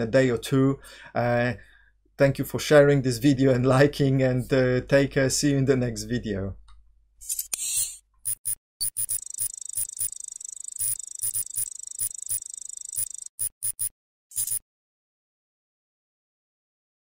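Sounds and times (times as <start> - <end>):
short sharp electronic blips: 7.8 - 14.6.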